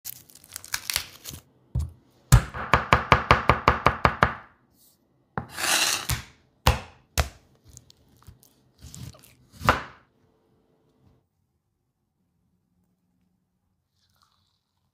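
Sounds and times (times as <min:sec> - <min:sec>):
garlic skin crackling: 0:00.1 - 0:01.5
knife chopping on wooden board: 0:05.4 - 0:07.4, 0:08.9 - 0:10.0.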